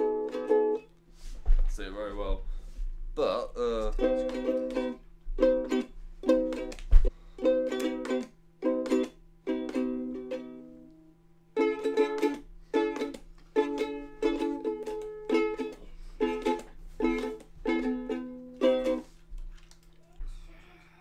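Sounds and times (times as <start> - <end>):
ukulele strumming: 0.0 - 1.0, 3.6 - 19.2.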